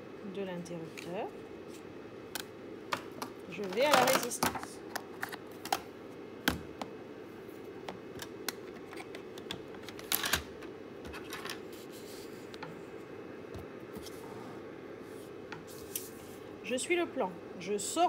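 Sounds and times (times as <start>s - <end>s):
steady low hum: 0.0s - 18.0s
scrape on table: 14.0s - 16.4s.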